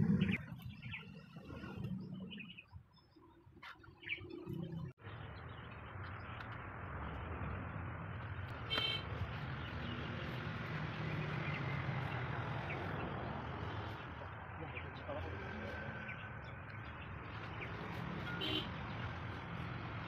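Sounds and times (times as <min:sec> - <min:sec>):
outdoor background noise: 0:00.0 - 0:20.0.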